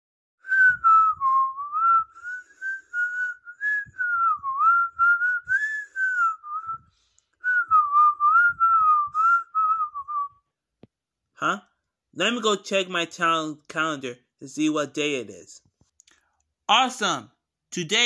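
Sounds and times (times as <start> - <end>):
person whistling a tune: 0.4 - 10.5.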